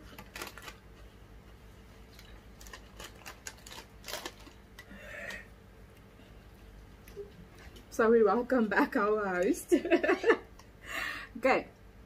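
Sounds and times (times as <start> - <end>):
chips crunching: 0.0 - 0.9, 2.1 - 4.9
chip packet crinkling: 0.0 - 1.0, 2.1 - 5.0
faint steady hum: 0.0 - 12.0.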